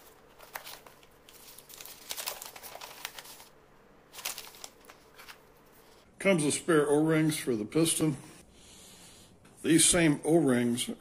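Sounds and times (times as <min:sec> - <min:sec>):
packaging rustling and crinkling: 0:00.0 - 0:05.7.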